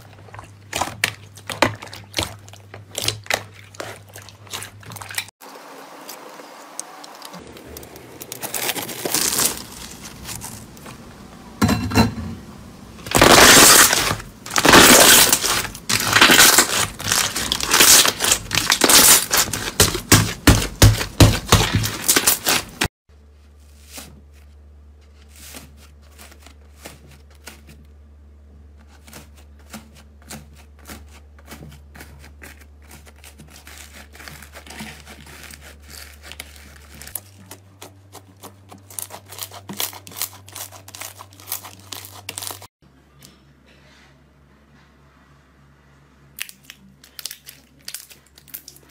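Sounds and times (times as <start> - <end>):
slime crackling and popping: 7.3 - 10.6, 13.1 - 22.9, 46.4 - 48.9.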